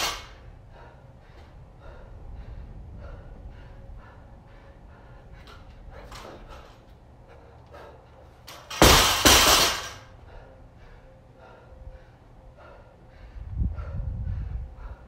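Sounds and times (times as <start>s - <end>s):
hard panting breaths: 0.0s - 8.5s, 10.0s - 15.0s
barbell plates rattling: 8.4s - 10.1s
barbell crashing onto mats: 8.7s - 10.0s.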